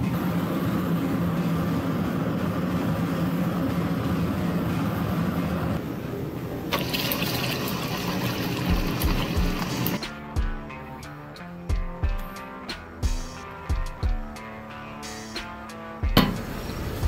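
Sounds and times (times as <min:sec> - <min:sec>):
gas forge burner rushing: 0:00.0 - 0:10.1, 0:16.0 - 0:17.0.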